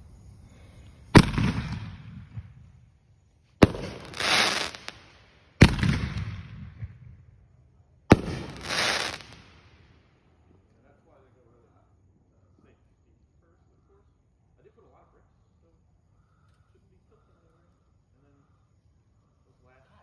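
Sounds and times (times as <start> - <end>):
fireworks hissing crackle: 0.0 - 2.6, 3.6 - 6.2, 8.1 - 9.9
fireworks bangs: 1.1 - 2.6, 3.6 - 7.0, 8.1 - 9.7.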